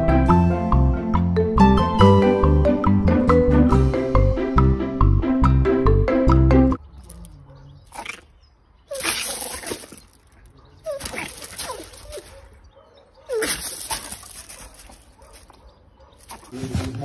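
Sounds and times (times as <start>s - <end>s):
small dog yelping: 8.9s - 10.0s, 10.6s - 12.6s, 13.2s - 16.2s
scuffling on loose gravel: 8.9s - 12.7s, 13.3s - 17.0s.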